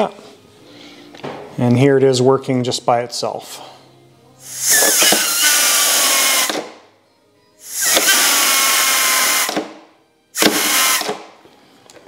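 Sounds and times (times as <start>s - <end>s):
hissing bursts of air: 4.4s - 6.6s, 7.6s - 9.6s, 10.4s - 11.2s.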